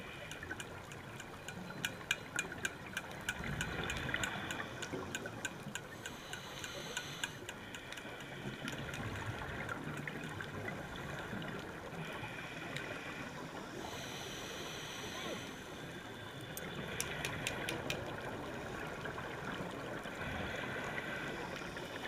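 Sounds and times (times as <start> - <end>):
sharp clicks: 0.2 - 9.0, 16.6 - 18.1
underwater hiss: 5.9 - 8.8, 12.0 - 17.9.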